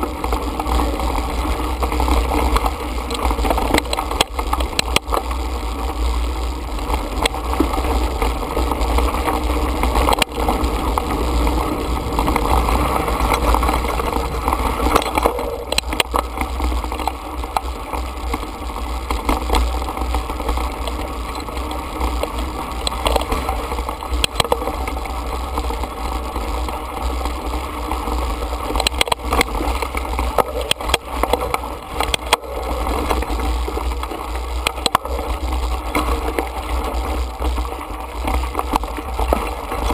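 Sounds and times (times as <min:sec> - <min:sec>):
bike clicking and knocking: 0:00.0 - 0:05.5, 0:06.5 - 0:25.7, 0:26.3 - 0:39.9
wind and tyre rumble: 0:00.0 - 0:39.9.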